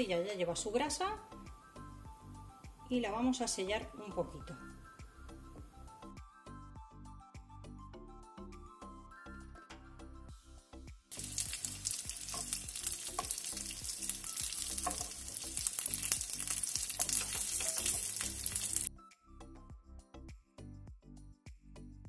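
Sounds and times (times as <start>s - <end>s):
soft background music: 0.0s - 22.0s
sausage sizzling in a frying pan: 11.1s - 18.9s.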